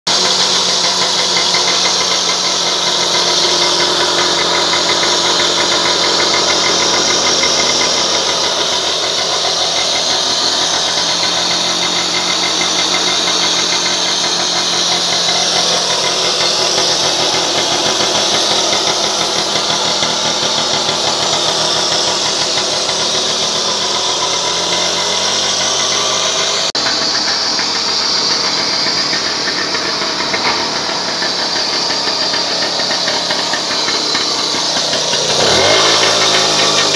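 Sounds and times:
moped engine idling: 0.0 - 36.9.

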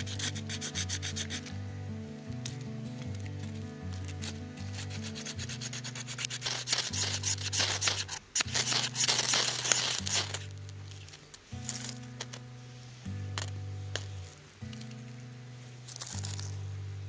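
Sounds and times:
knife shaving wood: 0.0 - 1.5, 3.2 - 12.4
ferro rod scraping: 0.0 - 1.6, 2.4 - 16.8
background music with bass: 0.0 - 17.0.

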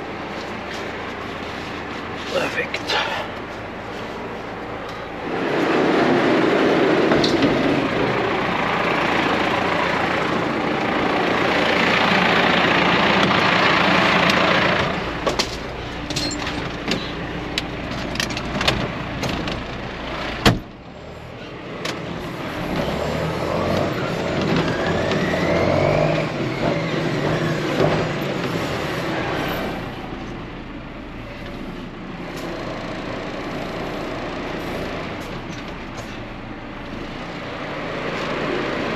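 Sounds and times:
tractor running: 0.0 - 38.9.

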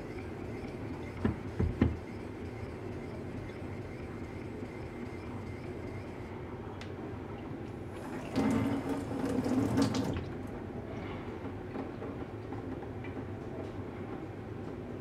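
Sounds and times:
steady background hum: 0.0 - 15.0
water splashing into metal sink: 8.1 - 10.3.

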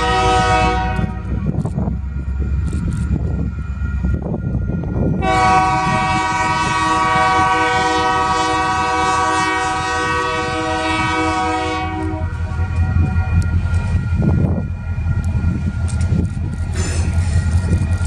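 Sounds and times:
locomotive air horn blast: 0.0 - 1.4, 5.2 - 12.6
train rumbling: 0.0 - 18.0.

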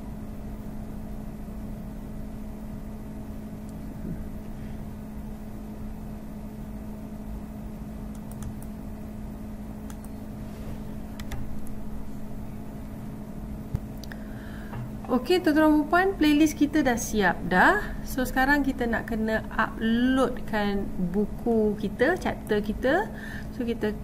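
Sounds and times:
low machine hum: 0.0 - 24.0
computer mouse clicks: 8.1 - 8.8, 9.8 - 10.2, 11.2 - 11.4.

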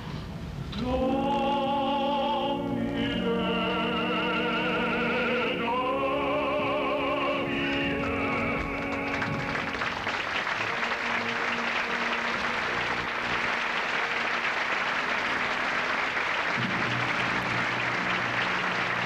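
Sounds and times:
audience applauding: 7.2 - 19.0.

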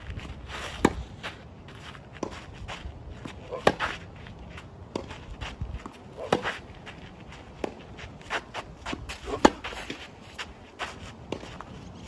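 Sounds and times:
shoes scuffing on clay court: 0.0 - 12.0
tennis racket hitting ball: 3.5 - 3.9, 5.8 - 6.6, 8.9 - 10.0.

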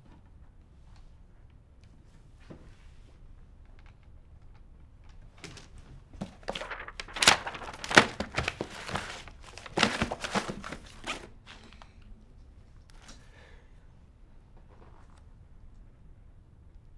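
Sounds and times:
crumpled paper rustling: 5.5 - 11.8.

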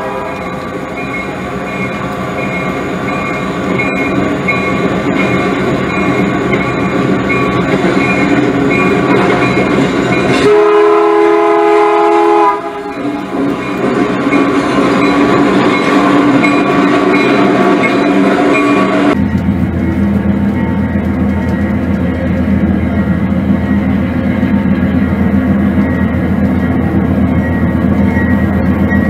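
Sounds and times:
train horn chord: 0.0 - 0.5, 10.3 - 13.1
model train rumbling: 0.0 - 29.0.

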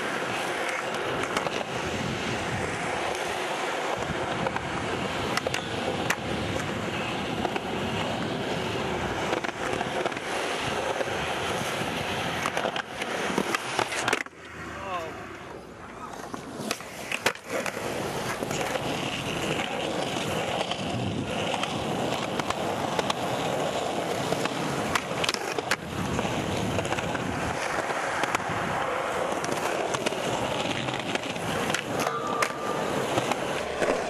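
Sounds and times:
skateboard wheels rolling on concrete: 0.0 - 34.0
skateboard landing clacks: 29.3 - 34.0.

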